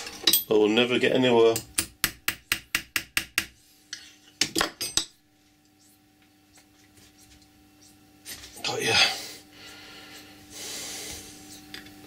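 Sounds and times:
small hammer tapping metal: 1.5 - 3.6.

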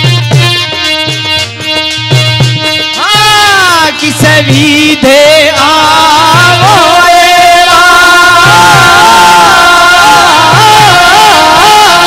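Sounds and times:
folk music with drums: 0.0 - 12.0.

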